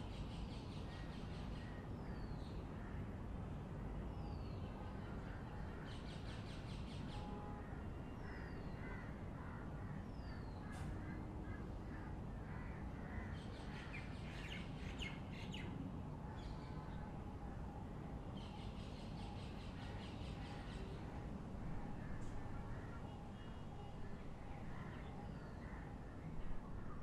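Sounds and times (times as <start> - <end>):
harsh crow-like bird calls: 7.1 - 14.6.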